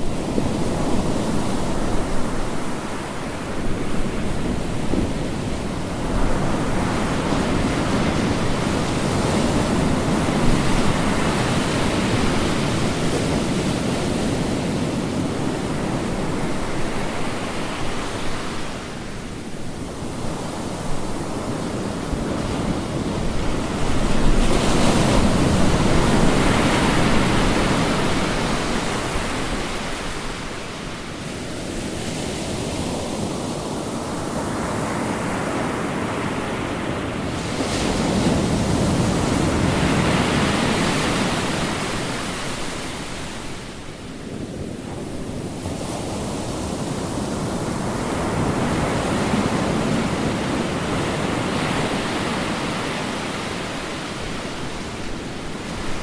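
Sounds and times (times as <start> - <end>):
ocean surf breaking on beach: 0.0 - 56.0.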